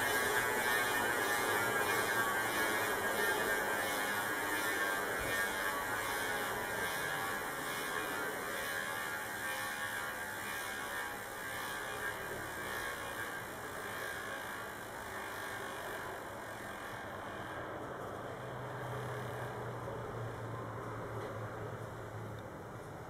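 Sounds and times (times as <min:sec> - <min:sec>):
bicycle hub freewheeling buzz: 0:00.0 - 0:23.0.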